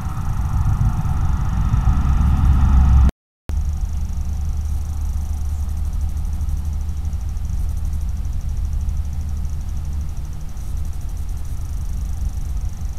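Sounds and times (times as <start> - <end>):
faint high whine: 0.0 - 12.9
low electronic hum: 0.0 - 12.9.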